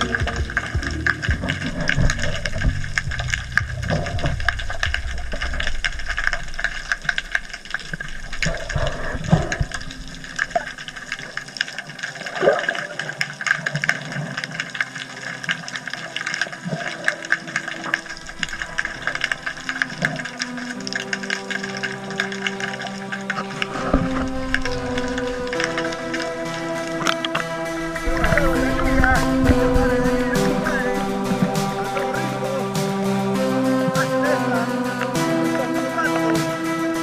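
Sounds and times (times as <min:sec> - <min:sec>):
low rumble: 0:00.0 - 0:11.7, 0:17.9 - 0:21.4, 0:23.4 - 0:35.6
underwater crackling clicks: 0:00.0 - 0:32.2
steady hiss: 0:00.0 - 0:37.0
water movement: 0:00.0 - 0:37.0.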